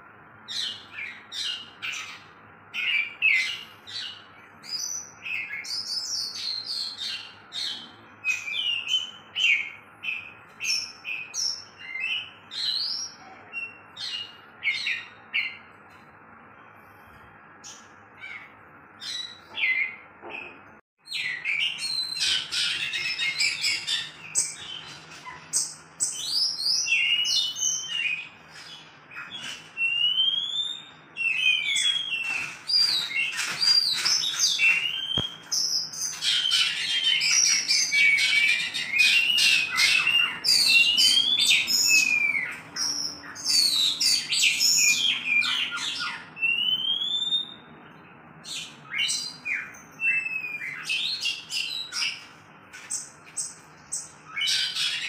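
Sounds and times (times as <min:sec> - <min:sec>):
magpie-robin singing: 0:00.4 - 0:15.7, 0:17.6 - 0:55.0.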